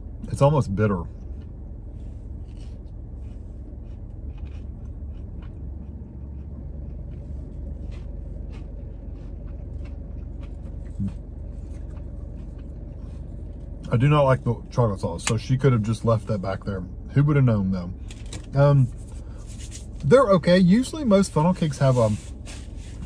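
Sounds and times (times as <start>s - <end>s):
car engine idling: 0.0s - 23.0s
faint chewing: 1.2s - 13.9s.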